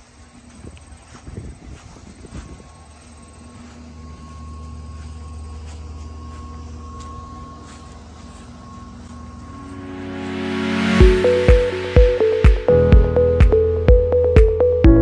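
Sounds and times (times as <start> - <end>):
low mechanical drone: 0.0 - 15.0
outdoor background sound: 0.0 - 15.0
music: 8.8 - 15.0.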